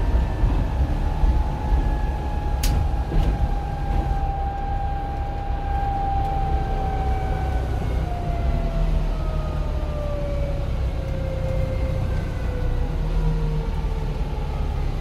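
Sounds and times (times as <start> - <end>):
steady whine: 0.0 - 10.1
bus engine low rumble: 0.0 - 15.0.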